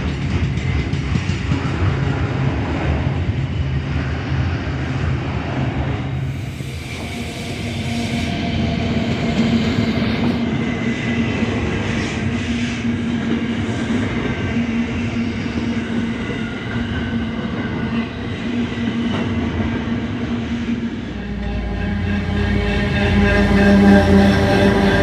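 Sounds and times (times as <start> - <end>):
diesel locomotive passing: 0.1 - 25.0
low hum: 20.8 - 25.0.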